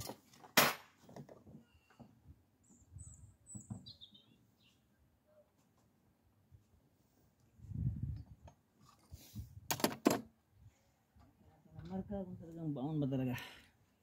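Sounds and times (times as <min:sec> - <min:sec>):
bird chirping: 0:01.6 - 0:05.5.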